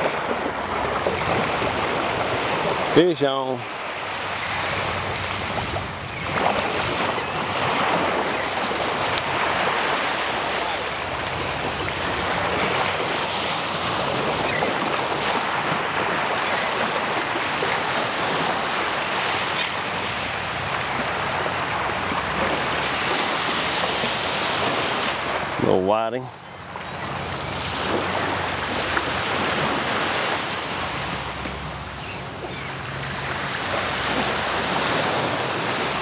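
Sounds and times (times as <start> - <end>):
surf washing up on beach: 0.0 - 36.0
wind buffeting microphone: 3.6 - 25.8.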